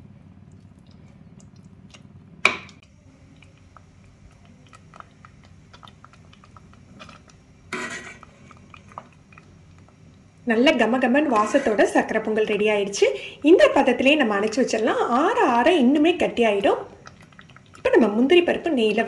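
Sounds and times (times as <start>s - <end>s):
thick food bubbling in a pot: 0.0s - 19.0s
ladle scraping into food: 6.9s - 9.0s, 11.2s - 12.0s.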